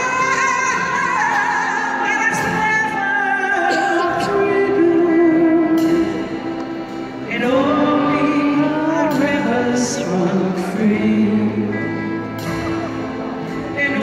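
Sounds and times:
woman singing a slow ballad: 0.0 - 12.4, 13.6 - 14.0
piano accordion chords: 3.2 - 14.0.

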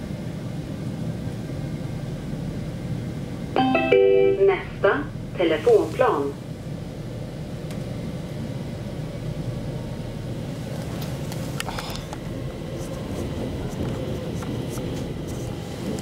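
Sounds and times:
train rumble inside car: 0.0 - 16.0.

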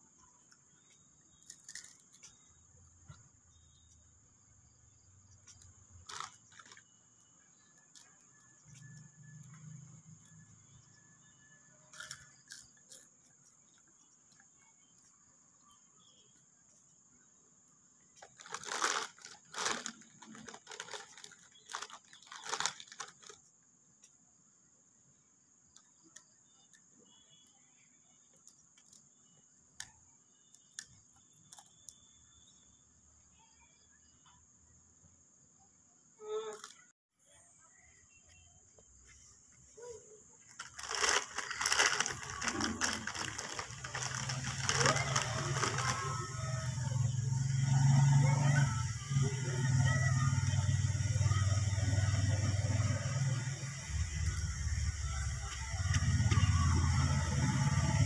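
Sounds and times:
sharp crackling and rustling: 5.4 - 9.6, 18.2 - 23.5, 40.4 - 47.1
high-pitched whine: 41.5 - 58.0.

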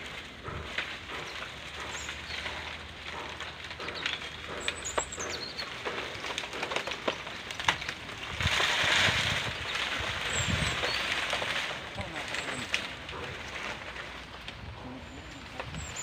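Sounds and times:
dry leaves rustling and crackling: 0.0 - 16.0
bird chirping: 1.1 - 6.0, 9.6 - 11.3.

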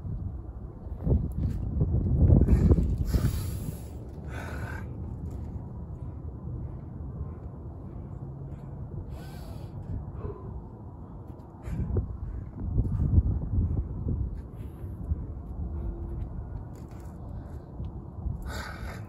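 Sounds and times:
low rumble: 0.0 - 19.0
man breathing hard and gasping: 2.4 - 10.9, 18.3 - 19.0.

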